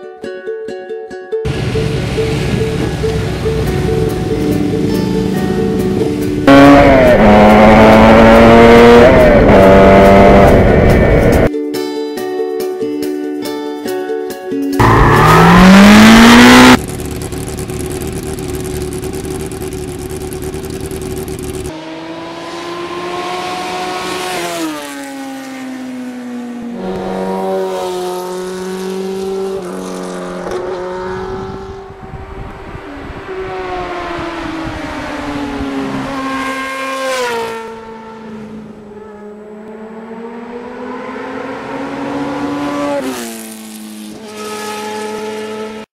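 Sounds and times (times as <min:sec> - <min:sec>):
motorcycle engine accelerating: 0:01.5 - 0:11.5, 0:14.8 - 0:45.9.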